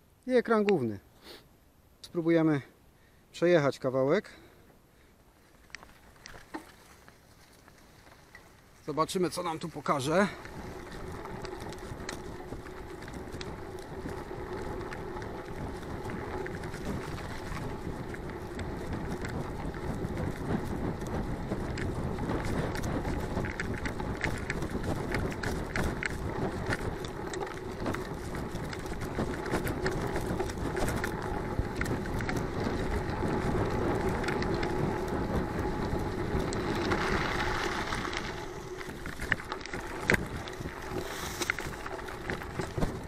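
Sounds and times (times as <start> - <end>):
bike tyre noise on gravel: 4.2 - 43.0
bike clicks and rattles: 5.4 - 43.0
wind on camera: 8.9 - 43.0.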